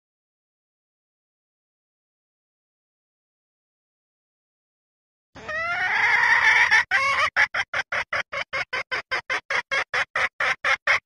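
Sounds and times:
junglefowl hen calling: 5.4 - 11.0.

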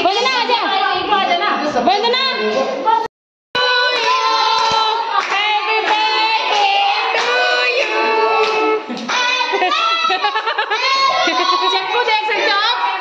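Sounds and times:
women and children singing: 3.6 - 13.0
hand clapping: 3.9 - 9.3.

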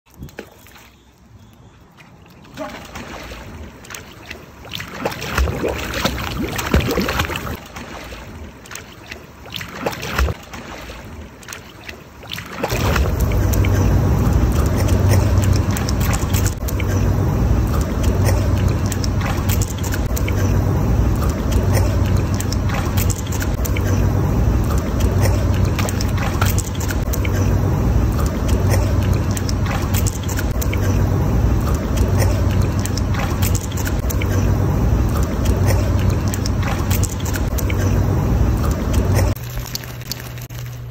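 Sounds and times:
dog splashing in water: 2.4 - 17.0, 28.1 - 40.8
loud low rumble: 12.7 - 39.4.

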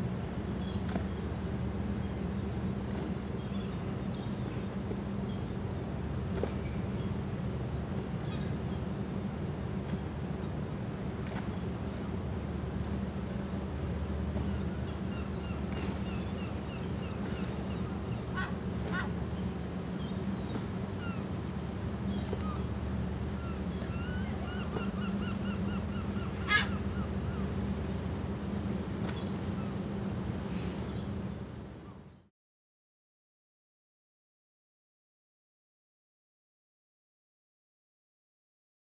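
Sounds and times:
low machinery hum: 0.0 - 32.3
birds calling: 14.4 - 28.4.

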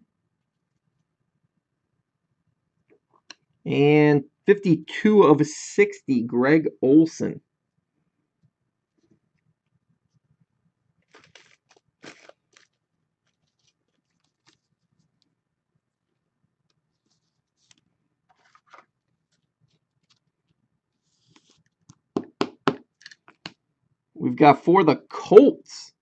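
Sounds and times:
trading cards rustling and clicking: 11.1 - 14.8, 17.1 - 20.6.

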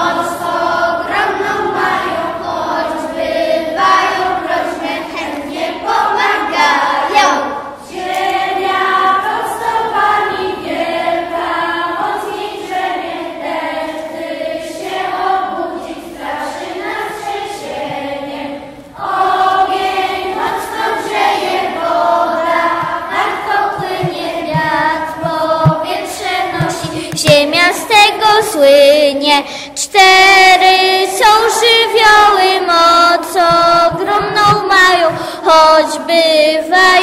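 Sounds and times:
children singing together: 0.0 - 37.0.

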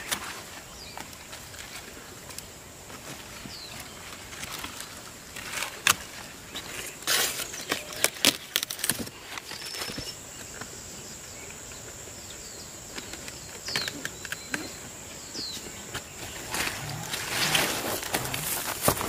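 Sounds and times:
leaves snapping and rustling: 3.8 - 10.0, 16.1 - 19.0
bird chirps: 9.1 - 18.4.

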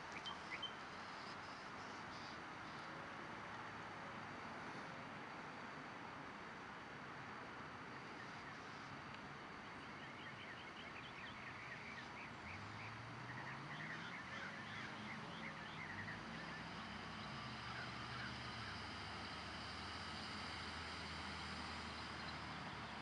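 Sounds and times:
steady outdoor hiss: 0.0 - 23.0
low engine drone: 11.8 - 23.0.

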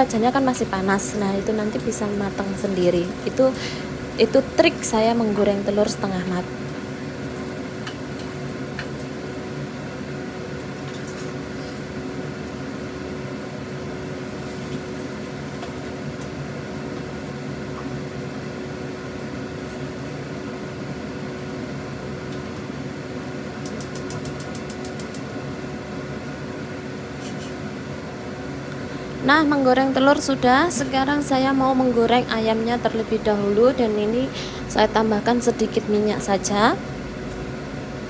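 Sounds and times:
kitchen fan humming: 0.0 - 38.0
gas stove igniter ticking: 23.6 - 25.3
utensils clicking on wok: 23.6 - 25.3.

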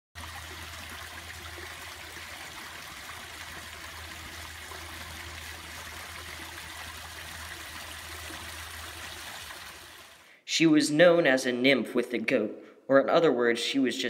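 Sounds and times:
creek trickling: 0.2 - 10.4.

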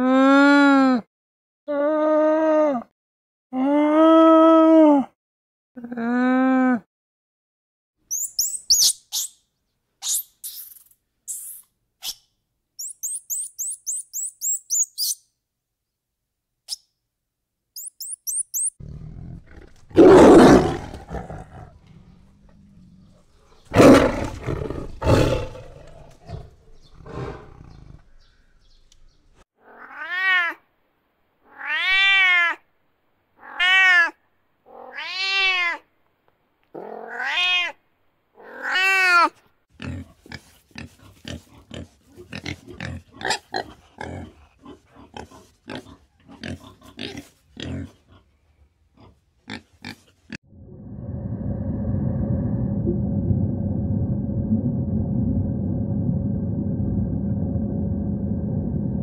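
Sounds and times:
high thin chirps: 8.1 - 9.4, 10.0 - 15.2, 17.8 - 18.8
tiger roaring: 18.8 - 28.2
cat meowing: 29.6 - 30.6, 31.5 - 32.6, 33.4 - 35.8, 36.8 - 37.8, 38.4 - 39.3.

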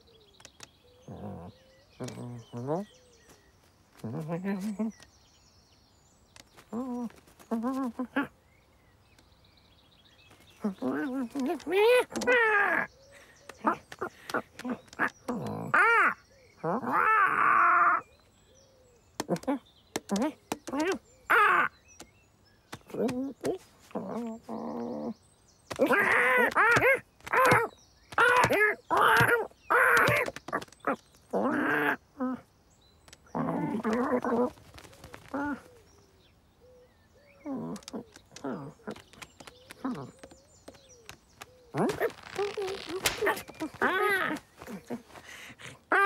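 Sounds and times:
sharp clicks: 0.3 - 0.8, 13.4 - 15.6, 19.2 - 21.0, 25.7 - 31.2, 33.0 - 35.4, 37.6 - 44.5
person imitating bird chirps: 6.6 - 8.4, 10.5 - 18.1, 19.2 - 22.1, 22.7 - 32.5, 37.4 - 46.0
rough vocal cry: 22.9 - 32.4
voiced cartoon bird squawking: 41.8 - 45.2.

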